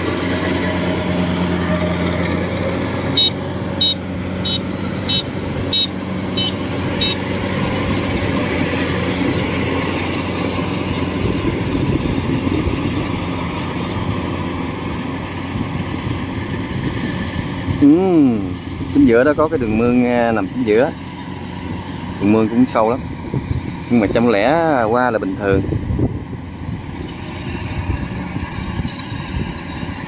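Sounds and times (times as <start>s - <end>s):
combine harvester running: 0.0s - 30.0s
short high-pitched beeps: 3.2s - 7.2s.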